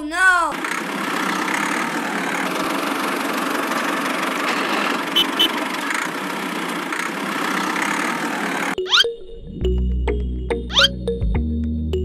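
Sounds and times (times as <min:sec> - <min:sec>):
miniature tractor engine running: 0:00.5 - 0:08.8.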